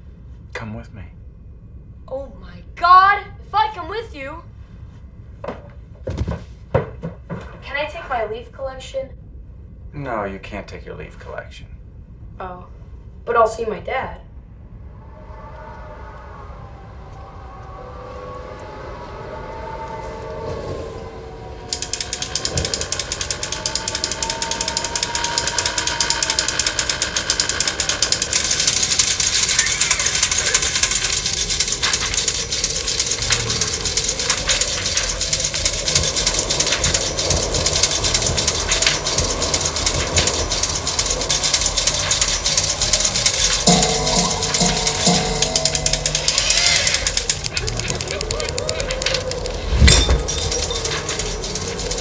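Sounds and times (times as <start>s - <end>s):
wavering tone: 14.6s - 52.0s
clockwork toys clicking and whirring: 21.7s - 52.0s.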